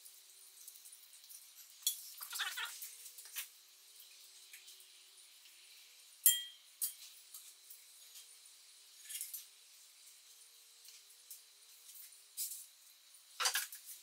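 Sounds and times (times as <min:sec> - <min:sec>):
sharp ringing metal clink: 0:06.2 - 0:07.0.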